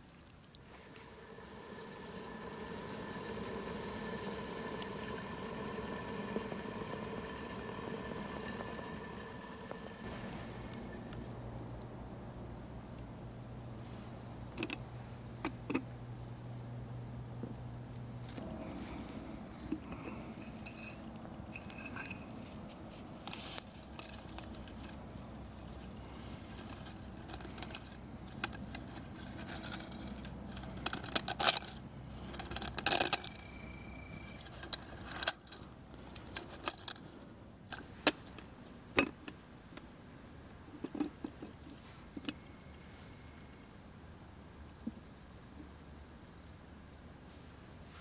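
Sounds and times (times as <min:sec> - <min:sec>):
metal ringing: 0:19.6 - 0:22.3
metal pot and lid clinking: 0:19.7 - 0:22.3.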